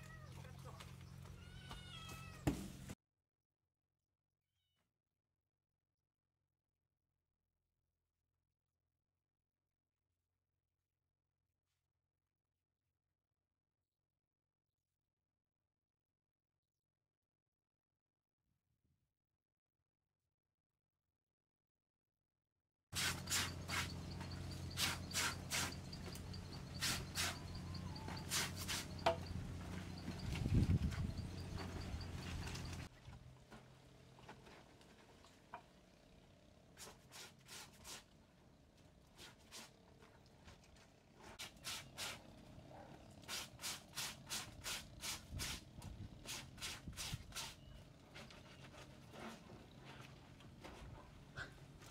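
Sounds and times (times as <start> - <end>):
brush scrubbing wet laundry: 23.0 - 29.2, 36.8 - 38.1, 39.0 - 39.9, 40.5 - 47.7.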